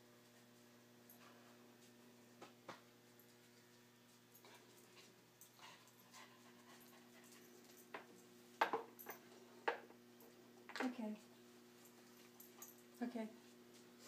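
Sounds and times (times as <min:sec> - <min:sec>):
dog sniffing and panting: 0:03.3 - 0:08.2.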